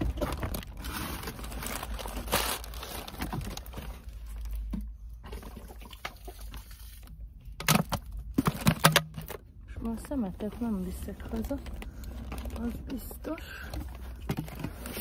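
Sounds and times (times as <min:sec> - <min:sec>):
paper bag crinkling: 0:00.0 - 0:04.5
bags rustling and crinkling: 0:00.0 - 0:04.7, 0:09.8 - 0:15.0.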